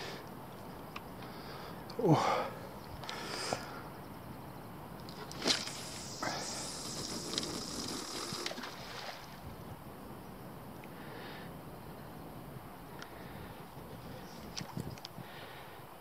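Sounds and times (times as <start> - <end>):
faint high whine: 0.0 - 16.0
fishing line and reel noise: 2.8 - 11.1.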